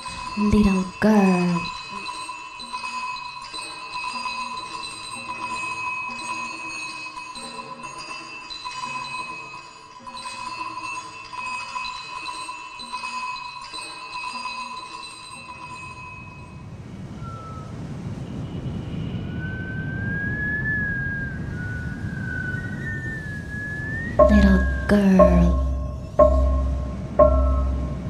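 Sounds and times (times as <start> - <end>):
bell-like chiming tones: 0.0 - 16.8, 24.2 - 28.0
thin high wavering tone: 0.0 - 28.0
low rushing noise: 25.5 - 28.0.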